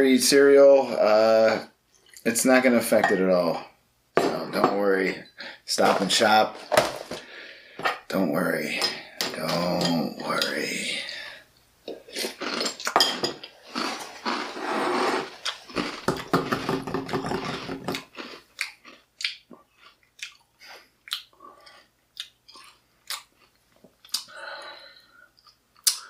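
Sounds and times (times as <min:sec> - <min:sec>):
cereal crunching while chewed: 0:12.1 - 0:13.0, 0:13.6 - 0:16.6.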